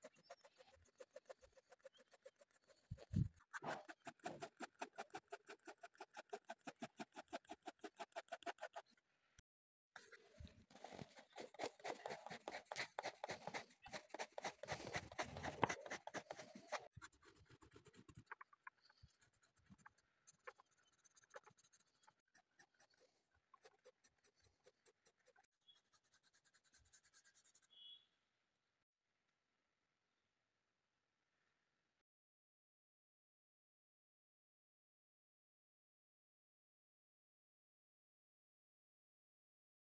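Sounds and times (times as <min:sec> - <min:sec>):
pencil scratching on paper: 0:00.0 - 0:08.9, 0:10.0 - 0:28.0.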